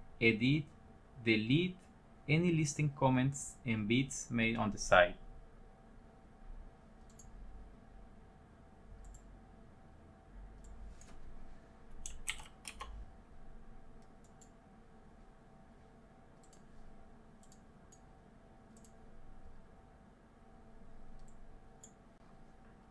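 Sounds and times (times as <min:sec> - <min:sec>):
computer mouse clicks: 0:07.0 - 0:07.4, 0:09.0 - 0:09.3, 0:12.0 - 0:13.0, 0:14.0 - 0:14.6, 0:16.4 - 0:16.7, 0:17.4 - 0:18.1, 0:18.7 - 0:19.0, 0:21.1 - 0:22.0
key presses: 0:12.0 - 0:13.0.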